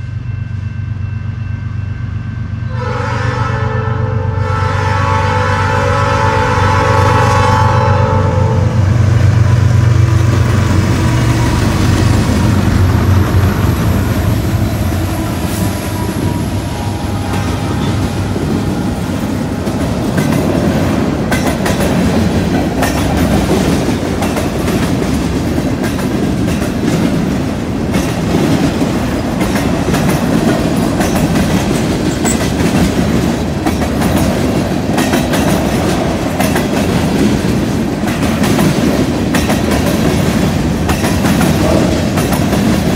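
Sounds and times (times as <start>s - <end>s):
locomotive engines rumbling: 0.0s - 42.9s
wheels clattering on rails: 9.5s - 42.9s.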